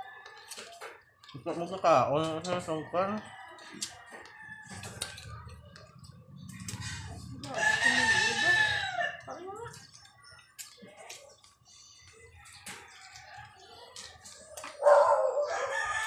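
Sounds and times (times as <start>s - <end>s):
rooster crowing: 7.5s - 9.2s, 14.8s - 16.0s.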